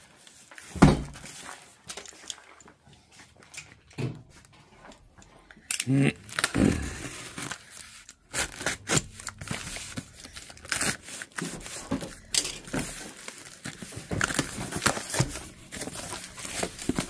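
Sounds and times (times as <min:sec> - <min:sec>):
tape tearing: 0:05.8 - 0:17.0
cardboard crinkling: 0:06.2 - 0:17.0.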